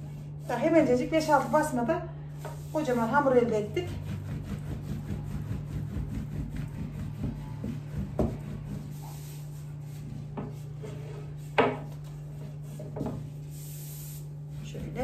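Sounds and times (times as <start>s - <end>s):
dough rustling over rolling pin: 0.0s - 15.0s
steady low hum: 0.0s - 15.0s.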